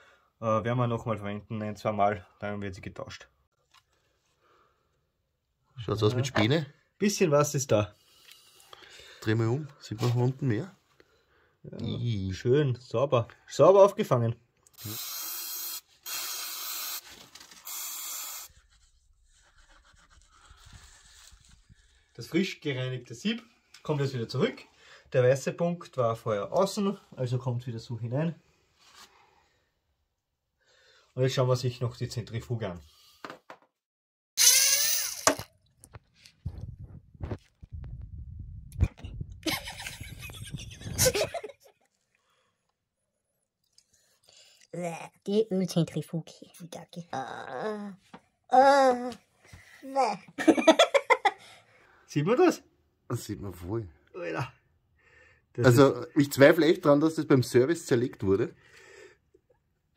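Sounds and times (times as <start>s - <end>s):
aerosol spray can hissing: 14.8s - 18.5s
low rumble: 36.5s - 39.5s.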